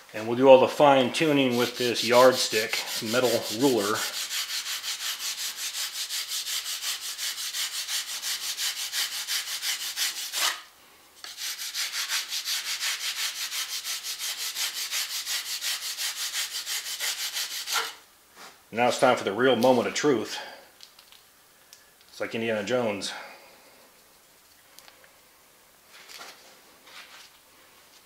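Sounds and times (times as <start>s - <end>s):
steel ruler scraping sand: 1.3s - 10.6s.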